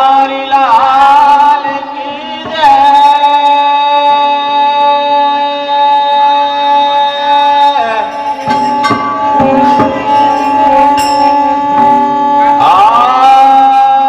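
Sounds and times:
harmonium holding notes: 0.0s - 14.0s
hand drum strokes: 7.6s - 13.0s.

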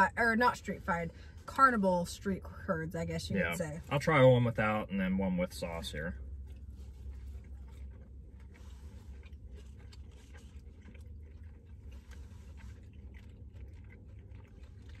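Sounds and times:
low hum inside car: 0.0s - 15.0s
people chewing: 5.6s - 15.0s.

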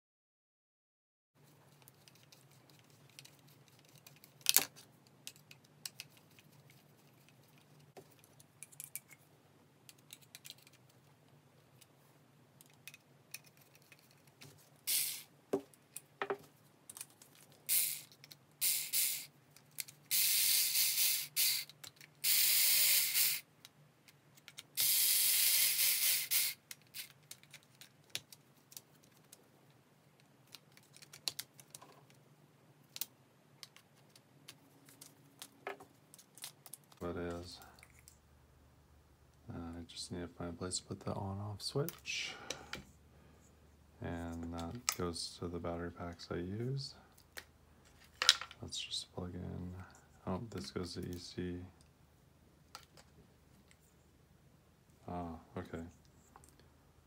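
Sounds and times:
small parts and tools clicking: 1.6s - 12.0s, 12.6s - 32.2s, 32.8s - 38.2s, 47.1s - 48.6s
electric screwdriver whirring: 20.1s - 23.4s, 24.8s - 26.6s.

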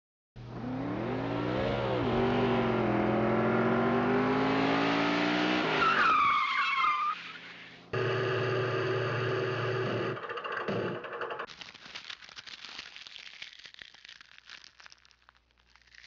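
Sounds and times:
car engine running: 0.4s - 5.8s
tire squeal: 5.4s - 7.9s.

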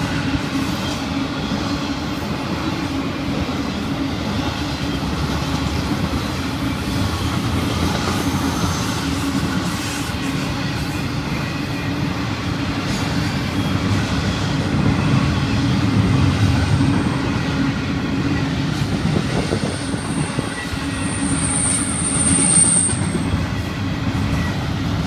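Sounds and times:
train wheels rumbling on rail: 0.0s - 25.0s
high-pitched wheel squeal: 19.4s - 24.7s.

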